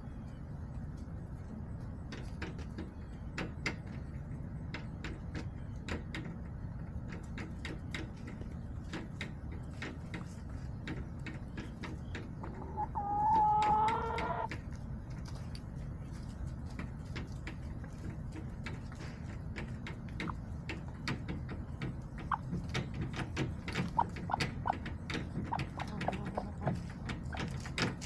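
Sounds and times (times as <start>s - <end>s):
chickens pecking hard surface: 0.0s - 28.0s
hen call: 12.6s - 14.5s.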